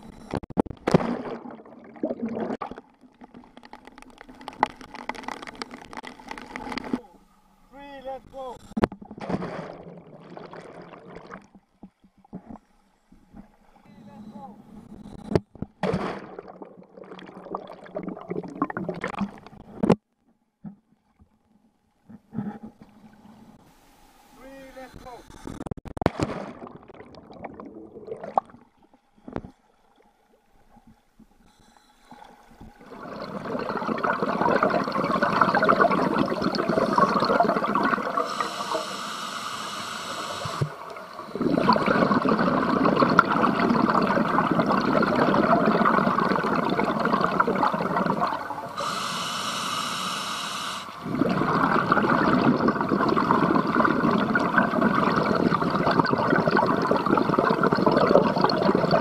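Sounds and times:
underwater exhaled air bubbling: 0.9s - 7.0s, 9.2s - 11.5s, 15.8s - 19.7s, 26.1s - 29.5s, 32.1s - 59.0s
regulator hiss on inhale: 23.6s - 25.5s, 38.2s - 41.4s, 48.7s - 51.1s.

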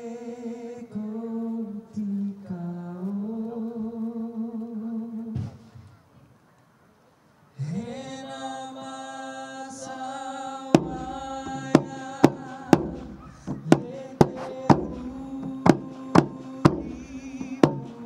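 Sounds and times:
amplified music: 10.8s - 18.0s
man singing a held note: 10.8s - 18.0s
sharp percussion hits: 10.8s - 18.0s.

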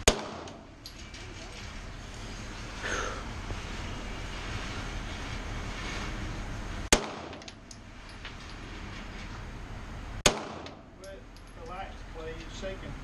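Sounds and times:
pistol shots: 0.0s - 0.6s, 6.9s - 7.6s, 10.2s - 10.9s.

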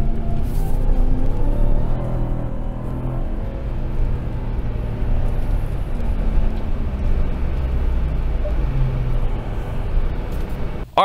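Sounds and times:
tyres rumbling on dirt track: 0.0s - 10.8s
truck engine running: 0.0s - 11.0s.

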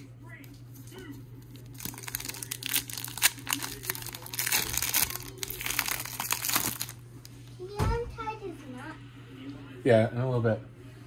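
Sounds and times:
foil wrapper crinkling: 0.8s - 7.3s.

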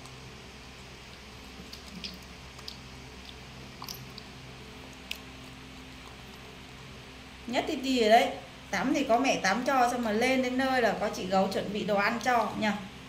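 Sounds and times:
steady low hum: 0.0s - 13.0s
wet clicks and smacks of chewing: 0.9s - 6.5s.

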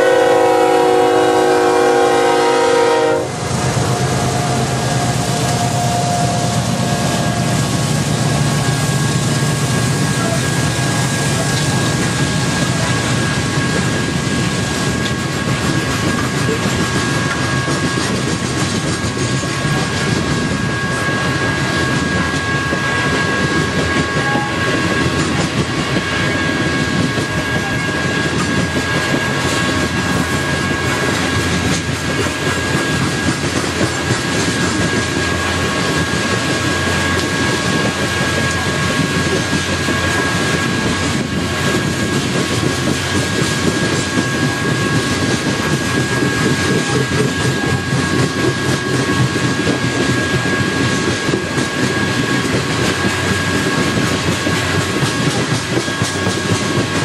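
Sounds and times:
clickety-clack over rail joints: 0.0s - 57.0s
steel wheels rumbling on rails: 0.0s - 57.0s.

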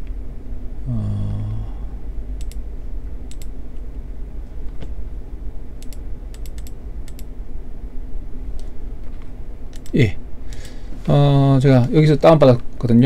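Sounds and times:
steady low hum: 0.0s - 13.0s
computer mouse clicking: 2.4s - 2.6s, 3.2s - 3.8s, 5.8s - 7.3s, 9.7s - 10.7s.

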